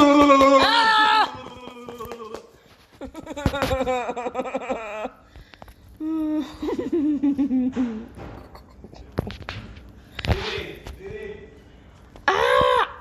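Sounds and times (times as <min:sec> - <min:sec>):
giggly laughter: 0:03.0 - 0:05.3, 0:06.4 - 0:09.0.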